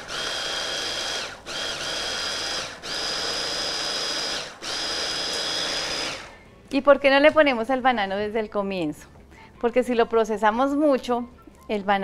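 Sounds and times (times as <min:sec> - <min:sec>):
electric blender whining: 0:00.0 - 0:06.4.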